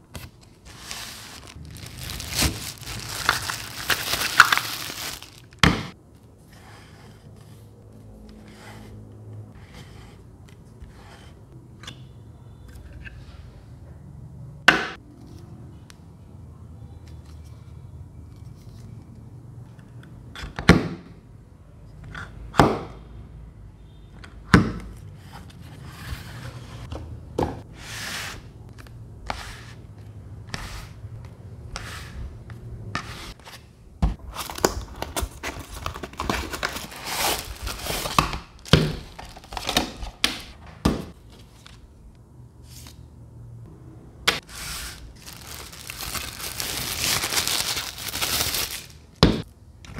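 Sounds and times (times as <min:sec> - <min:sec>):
packaging rustling and crinkling: 0:00.3 - 0:05.6, 0:34.2 - 0:40.3, 0:44.9 - 0:49.1.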